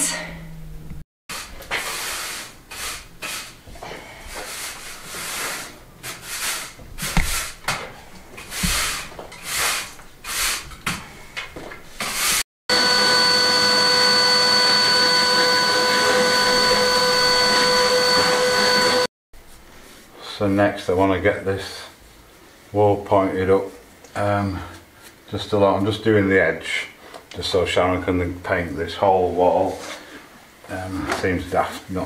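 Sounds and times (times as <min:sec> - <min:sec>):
broom sweeping a floor: 0:01.3 - 0:12.4, 0:17.4 - 0:20.4
vacuum cleaner whining: 0:12.7 - 0:19.1.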